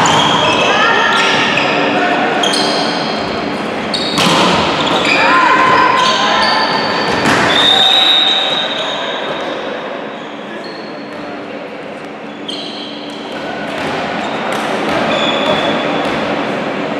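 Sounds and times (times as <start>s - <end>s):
players' voices: 0.0s - 16.9s
shoe squeaks: 2.4s - 3.2s, 3.8s - 11.4s, 12.2s - 13.3s, 14.2s - 16.1s.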